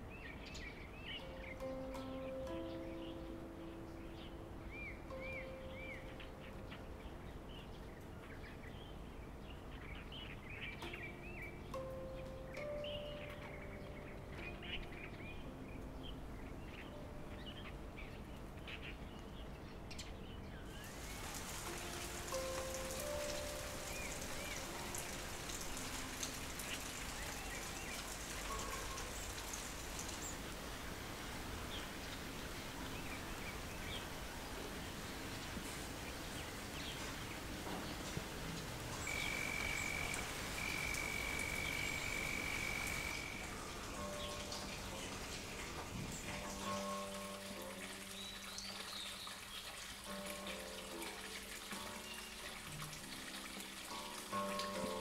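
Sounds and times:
light rain dripping: 0:00.0 - 0:55.0
outdoor hiss: 0:00.0 - 0:55.0
small birds chirping: 0:00.0 - 0:55.0
soft background music: 0:00.0 - 0:55.0
faint bird chirps: 0:39.0 - 0:45.2.

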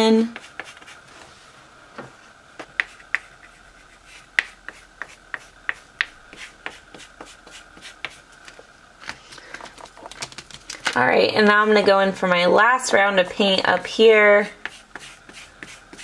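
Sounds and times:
foam brush tapping paint: 0:02.6 - 0:08.6.

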